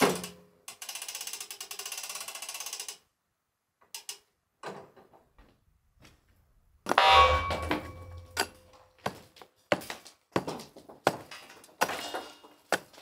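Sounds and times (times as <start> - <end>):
steel ringing: 6.9 - 8.6.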